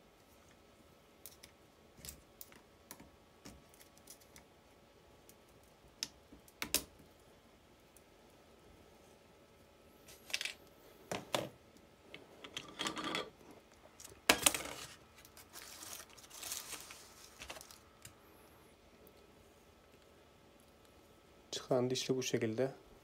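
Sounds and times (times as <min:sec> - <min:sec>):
rustling: 0:14.0 - 0:18.2.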